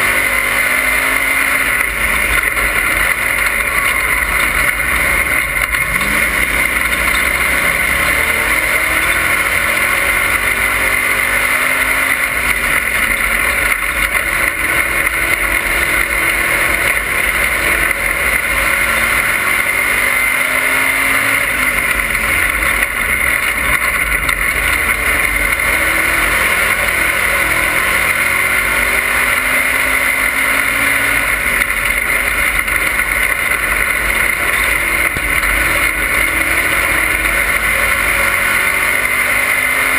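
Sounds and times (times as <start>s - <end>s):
race car engine revving: 0.0s - 39.9s
wind and road noise: 0.0s - 39.9s.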